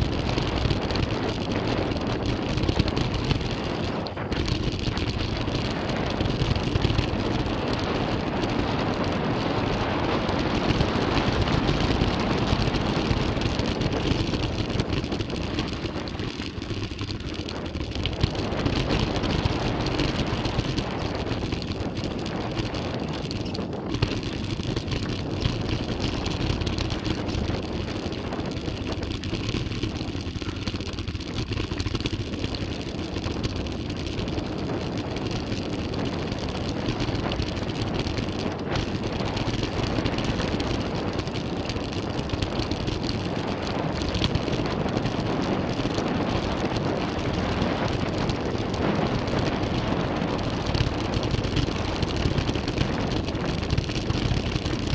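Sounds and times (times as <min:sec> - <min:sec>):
bike clattering over bumps: 0:00.0 - 0:54.9
wind on microphone: 0:00.0 - 0:54.9.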